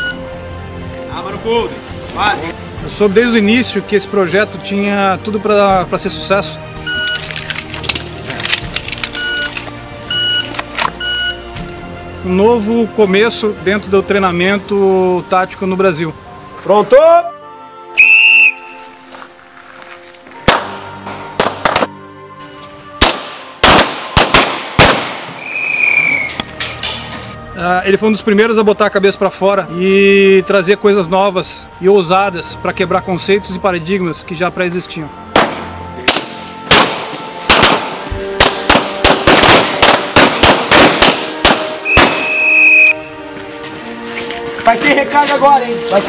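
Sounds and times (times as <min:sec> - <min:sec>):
whistle blast: 0:00.0 - 0:00.2, 0:10.1 - 0:11.4, 0:18.0 - 0:18.9, 0:25.4 - 0:26.5, 0:41.8 - 0:43.1
background music: 0:00.0 - 0:46.0
pistol shots: 0:20.5 - 0:21.9, 0:23.0 - 0:25.7, 0:35.3 - 0:42.6.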